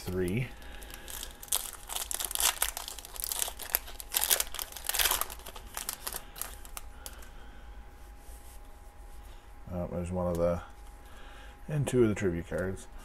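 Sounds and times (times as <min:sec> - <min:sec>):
foil wrapper crinkling and tearing: 0:00.0 - 0:07.3.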